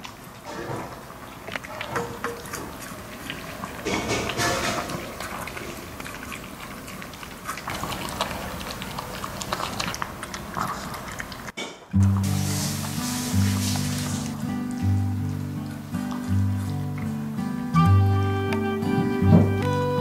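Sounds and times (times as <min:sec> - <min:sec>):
dog lapping and chewing: 0:00.0 - 0:17.8
background music with held notes: 0:12.0 - 0:20.0.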